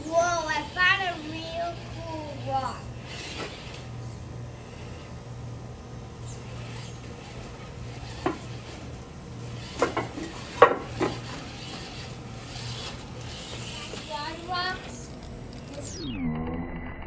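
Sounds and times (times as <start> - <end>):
low electric motor drone: 0.0 - 17.0
short pitched whine: 0.0 - 17.0
toy car knocking on roof tiles: 9.7 - 11.9.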